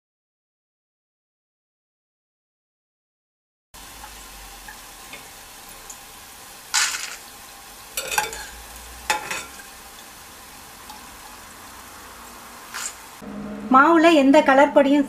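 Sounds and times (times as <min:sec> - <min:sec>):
batter sizzling in hot oil: 0:03.8 - 0:13.2
skimmer clanking against metal: 0:08.0 - 0:09.7.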